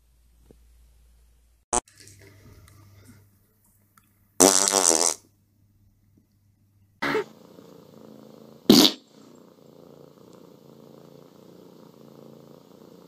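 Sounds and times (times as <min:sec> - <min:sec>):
cat purring: 0:07.0 - 0:13.0.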